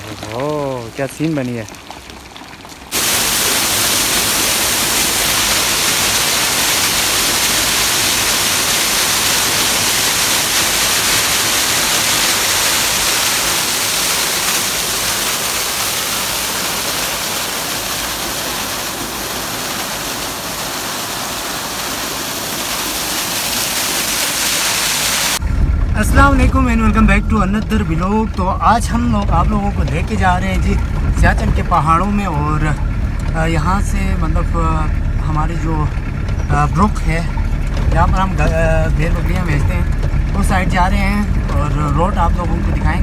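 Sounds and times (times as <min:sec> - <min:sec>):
waterfall rushing and splashing: 0:02.9 - 0:34.6.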